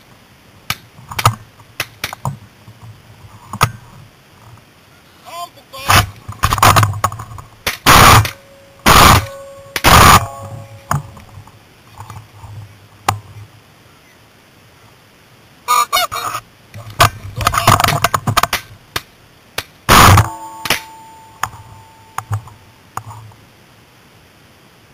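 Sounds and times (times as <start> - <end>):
shotgun shots: 7.6 - 11.1, 19.9 - 21.0
geese honking: 7.9 - 11.3, 15.6 - 16.4.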